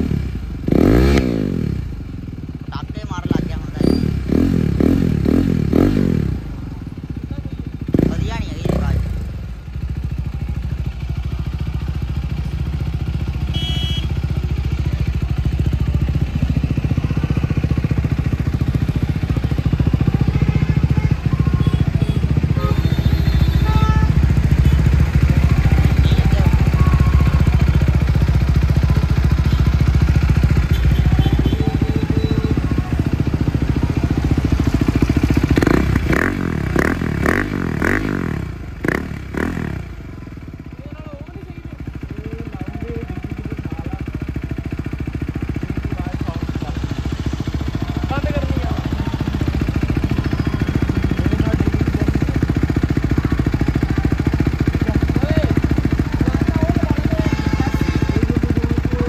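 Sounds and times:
motorcycle engine rumbling: 0.0 - 59.0.

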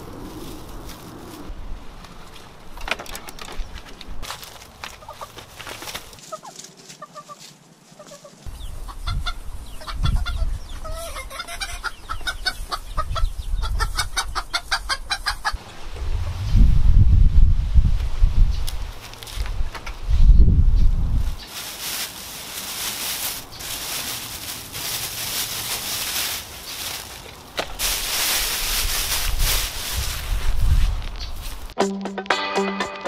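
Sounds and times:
chickens clucking: 4.9 - 5.4, 6.2 - 15.7
low rumble: 15.6 - 18.6.

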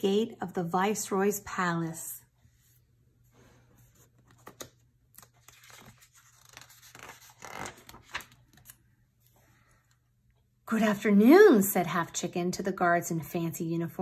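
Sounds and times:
book page turning: 3.8 - 9.4.

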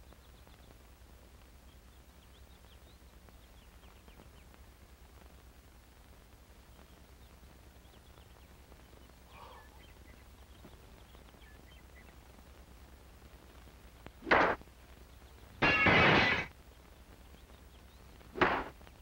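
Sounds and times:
low steady hum: 0.0 - 19.0
faint bird chirps: 6.6 - 12.2.

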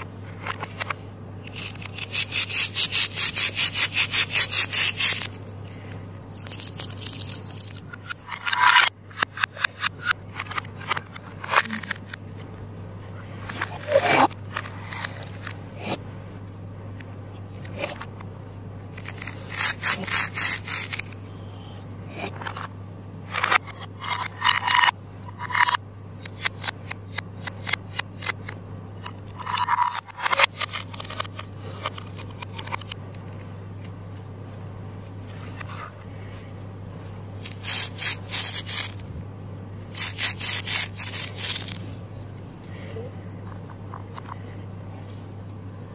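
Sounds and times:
steady low hum: 0.0 - 45.9
hook-and-loop tearing: 1.5 - 5.4, 6.3 - 8.3, 18.9 - 21.2, 30.4 - 32.9, 37.4 - 39.2, 39.9 - 41.9
plastic toy knife cutting: 1.5 - 5.4, 18.9 - 21.2, 30.0 - 33.0, 37.4 - 39.1, 39.9 - 41.8.

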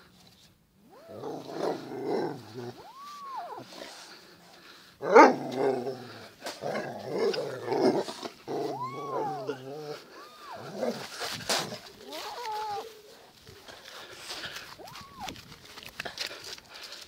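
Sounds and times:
dog growling: 0.9 - 4.2, 5.0 - 13.0
cat meowing: 2.7 - 4.0, 8.7 - 9.6, 10.2 - 11.1, 12.0 - 13.0, 14.8 - 15.4.

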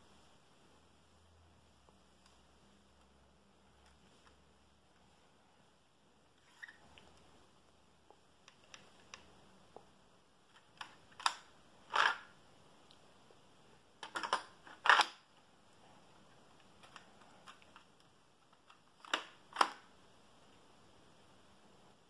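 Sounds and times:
plastic toy rifle clicks and clacks: 10.5 - 12.3, 14.0 - 15.2.

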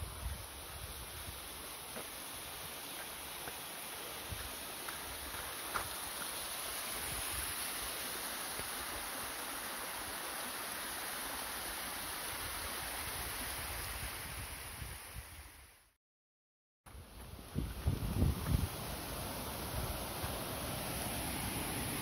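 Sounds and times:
waterfall rushing over rocks: 0.0 - 14.4, 17.8 - 22.0
wind rumble on microphone: 17.0 - 19.0.

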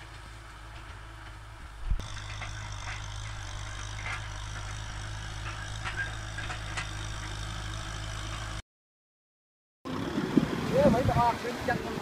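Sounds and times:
tractor engine droning: 0.0 - 8.6.

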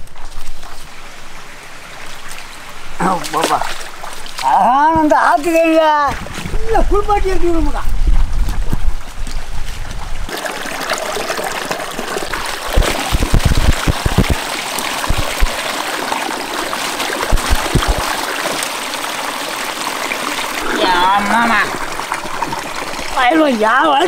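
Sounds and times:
river water flowing: 0.1 - 6.6, 10.3 - 24.0
low splashing knocks: 12.6 - 15.7, 17.2 - 18.3.

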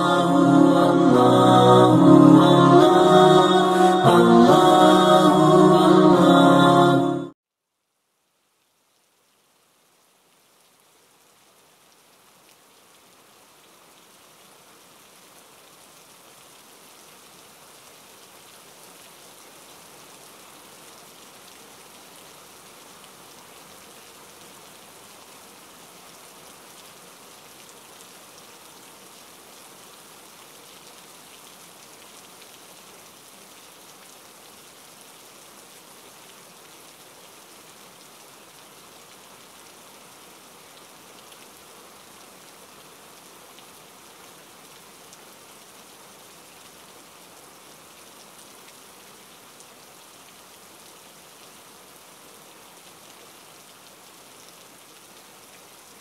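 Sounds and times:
rain hissing: 0.0 - 7.2.

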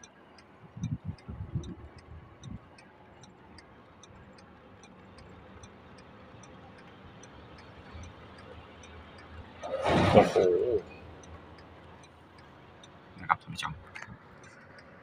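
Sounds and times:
car indicator relay ticking: 0.0 - 9.7, 10.8 - 15.0
low hum of car: 0.0 - 15.0.

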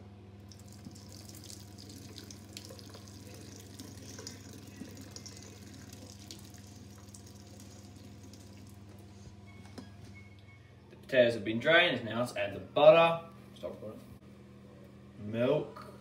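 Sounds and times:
water pouring into a steel sink: 0.5 - 8.8.

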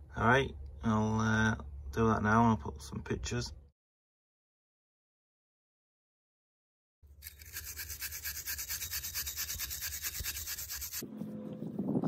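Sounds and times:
wire brush scrubbing rusty bolts: 7.2 - 11.0.

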